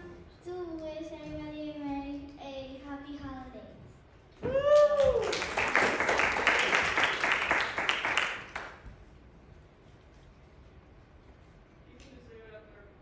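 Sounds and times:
person whooping: 0:04.4 - 0:05.5
audience applauding: 0:04.7 - 0:08.8.

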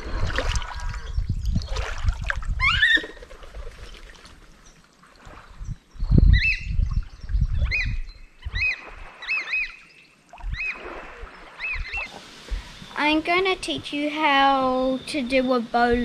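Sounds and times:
oystercatchers piping: 0:11.4 - 0:12.2.

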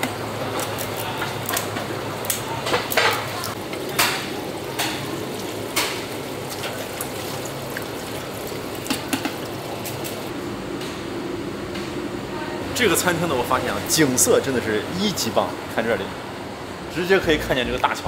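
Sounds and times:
running water: 0:02.4 - 0:10.3.

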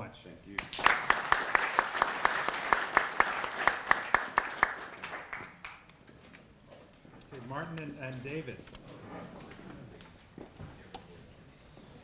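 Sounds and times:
audience applauding: 0:00.6 - 0:05.9
close loud claps: 0:00.6 - 0:05.9.

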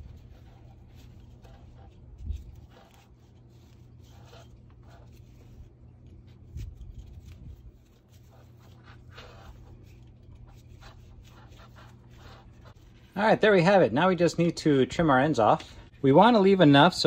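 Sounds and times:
cord rubbing and sliding: 0:00.0 - 0:13.2.

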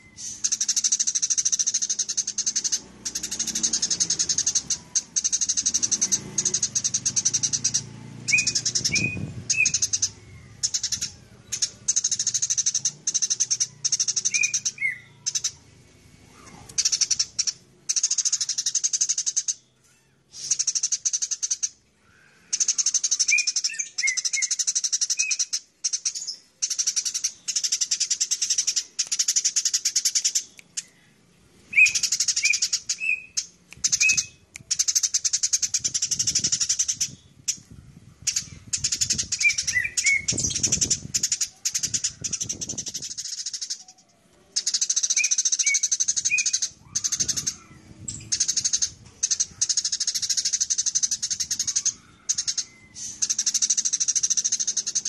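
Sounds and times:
short bird chirps: 0:00.0 - 0:15.6
sparrows chattering: 0:00.0 - 0:55.0.

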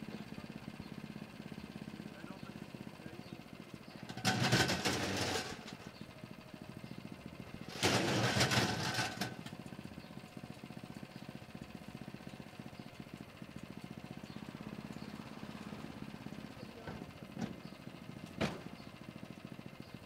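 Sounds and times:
small engine running: 0:00.0 - 0:20.0.

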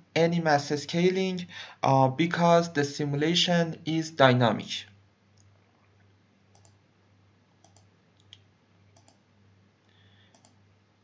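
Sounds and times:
faint low hum: 0:00.0 - 0:11.0
computer mouse clicks: 0:06.5 - 0:06.8, 0:07.6 - 0:08.4, 0:09.0 - 0:09.2, 0:10.3 - 0:10.6.

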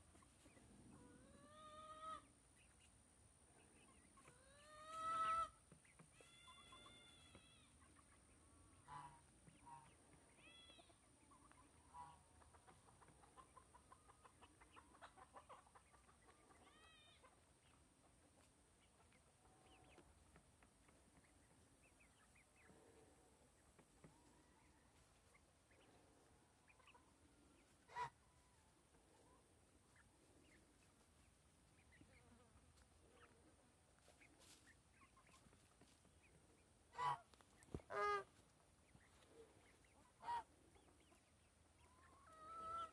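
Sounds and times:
chicks chirping: 0:00.0 - 0:22.8, 0:26.6 - 0:42.9
chickens squawking: 0:00.0 - 0:42.9
soft clucks: 0:03.8 - 0:22.7, 0:31.8 - 0:42.9.

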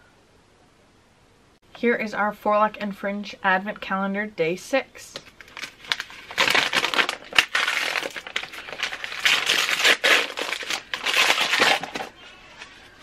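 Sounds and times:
paper wrapping crinkling and tearing: 0:05.3 - 0:12.9.

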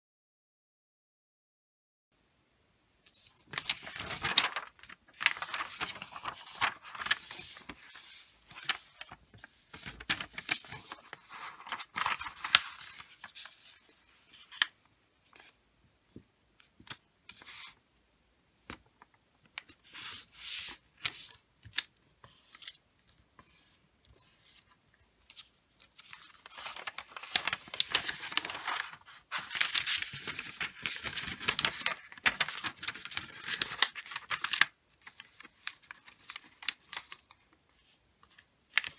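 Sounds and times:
wrapping paper rustling: 0:03.1 - 0:14.7, 0:25.3 - 0:37.5.

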